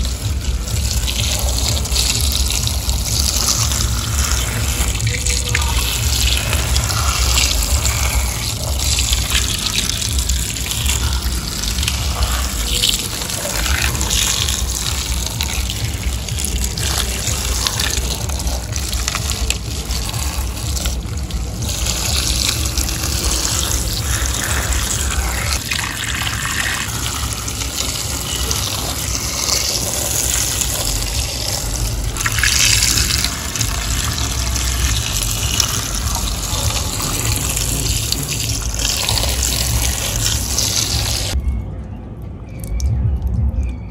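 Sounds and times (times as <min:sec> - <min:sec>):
water gushing: 0:00.0 - 0:41.4.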